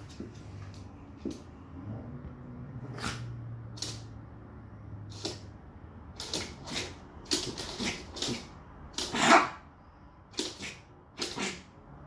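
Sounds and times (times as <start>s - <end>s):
small dogs yapping: 6.2s - 9.6s, 10.4s - 11.7s
dog barking: 9.0s - 9.7s.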